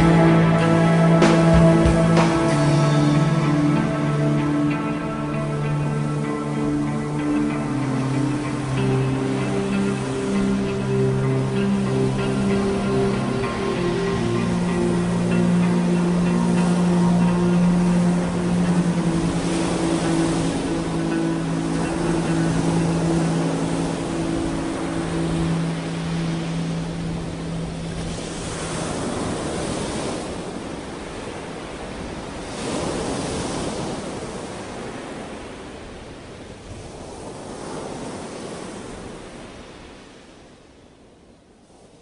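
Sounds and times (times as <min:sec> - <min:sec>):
held low chord: 0:00.0 - 0:29.8
ocean surf washing in: 0:00.0 - 0:42.0.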